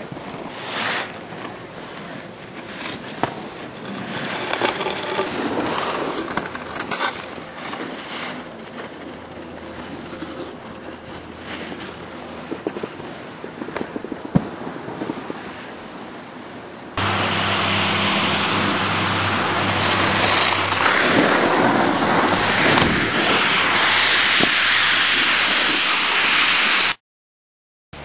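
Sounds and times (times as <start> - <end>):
wind rushing over microphone: 11.0 - 27.0
steady low hum: 17.0 - 25.7.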